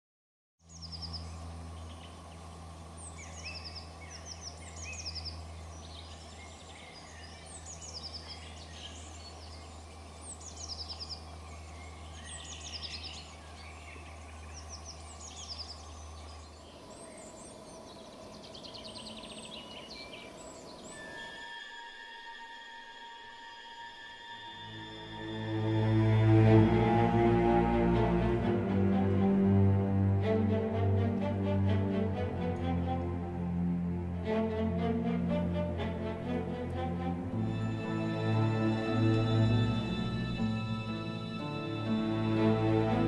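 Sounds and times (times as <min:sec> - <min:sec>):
steady low hum: 0:00.6 - 0:21.4
songbirds singing: 0:00.6 - 0:43.0.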